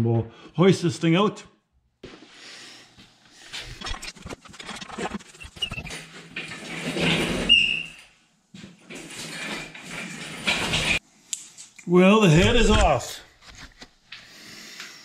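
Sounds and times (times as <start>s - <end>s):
short squeak: 4.9s - 6.0s, 7.2s - 8.2s
chain hoist clanking and rattling: 8.8s - 11.0s.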